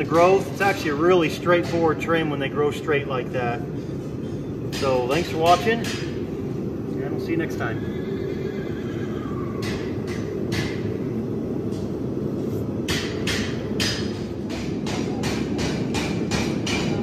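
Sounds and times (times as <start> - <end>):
hammer strikes: 12.8 - 17.0.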